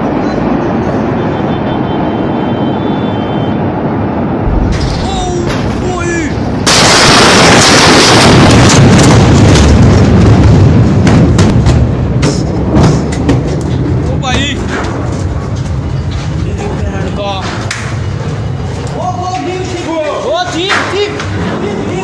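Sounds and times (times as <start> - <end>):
street noise: 0.0 - 22.0
explosion blast with heavy rumble: 3.6 - 15.6.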